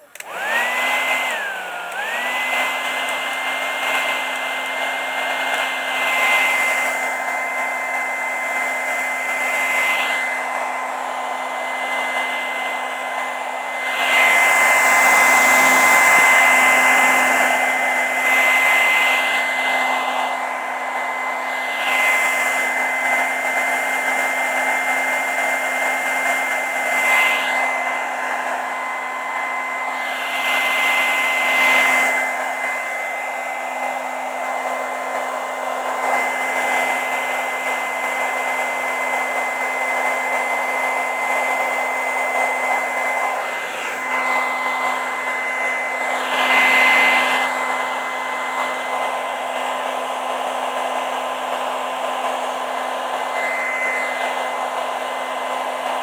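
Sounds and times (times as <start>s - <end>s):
hair dryer running: 0.0s - 56.0s.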